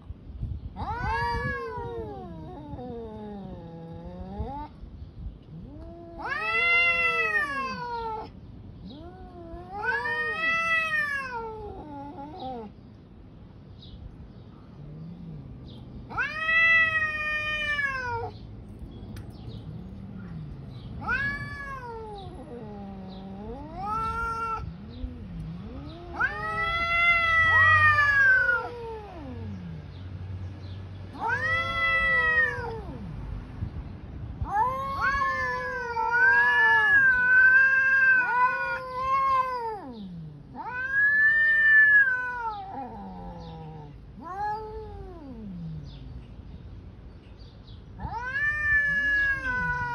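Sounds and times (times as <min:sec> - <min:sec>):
cats yowling: 0:00.8 - 0:04.8, 0:05.4 - 0:12.8, 0:14.7 - 0:18.4, 0:19.6 - 0:29.8, 0:31.1 - 0:33.2, 0:34.4 - 0:46.5, 0:47.9 - 0:49.9.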